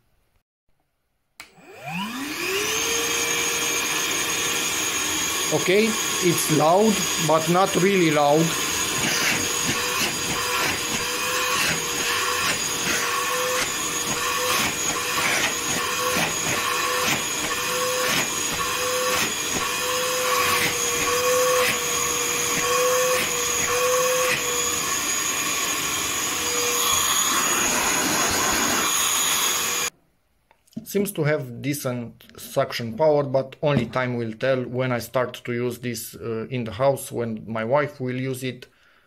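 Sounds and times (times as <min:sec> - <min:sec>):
vacuum cleaner running: 0:01.4 - 0:29.9.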